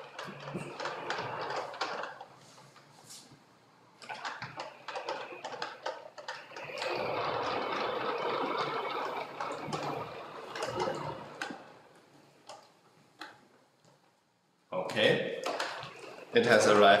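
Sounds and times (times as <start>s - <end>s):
robot motors whirring: 6.4s - 11.8s.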